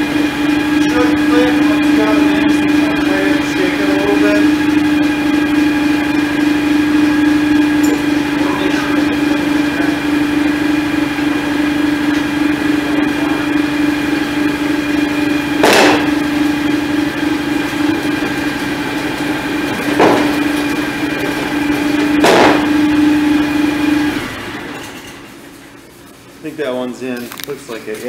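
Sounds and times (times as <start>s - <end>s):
garden tractor engine idling: 0.0s - 24.8s
sharp metal clunks: 7.8s - 8.2s.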